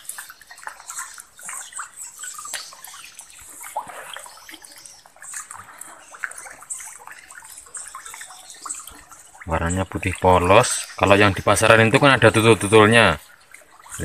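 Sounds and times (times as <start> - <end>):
pond water splashing and trickling: 0.0 - 14.0.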